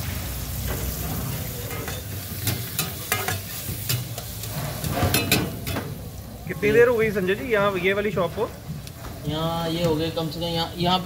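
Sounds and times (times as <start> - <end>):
food sizzling in frying pan: 0.0 - 10.5
metal spatula scraping pan: 0.8 - 5.8.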